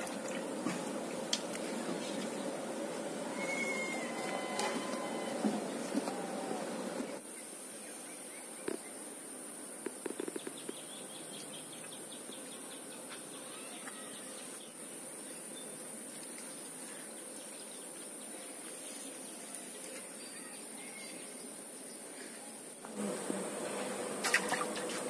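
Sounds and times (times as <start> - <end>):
high insect buzz: 0.4 - 7.2, 22.8 - 25.0.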